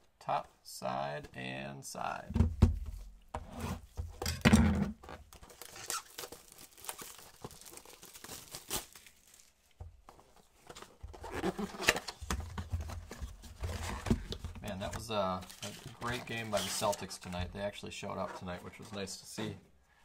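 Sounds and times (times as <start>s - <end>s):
cardboard and wrapper tearing: 5.3s - 9.7s, 11.2s - 12.2s.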